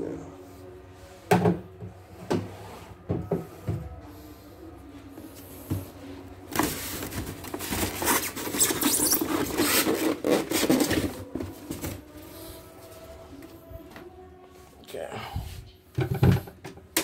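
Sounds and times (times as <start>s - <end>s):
styrofoam squeaking and rubbing: 6.5s - 13.0s.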